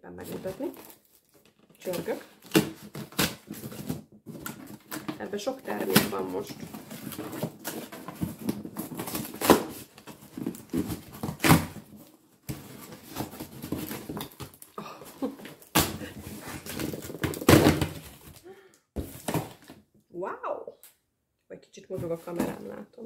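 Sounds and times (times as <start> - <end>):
packaging rustling and crinkling: 0.2 - 19.8
items knocking in cardboard box: 15.2 - 18.4.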